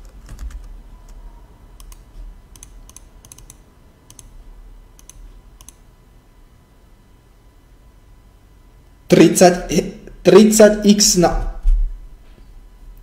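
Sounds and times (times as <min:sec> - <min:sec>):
computer keyboard keystrokes: 0:00.0 - 0:01.2, 0:01.8 - 0:04.3, 0:05.0 - 0:05.8
faint steady hum: 0:00.0 - 0:13.0.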